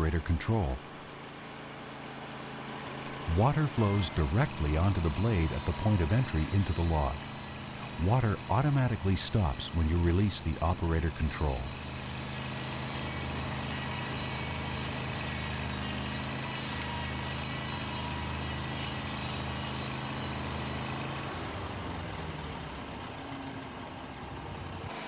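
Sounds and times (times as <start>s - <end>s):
engine running under load: 0.0s - 25.0s
band saw blade cutting log: 2.5s - 21.3s.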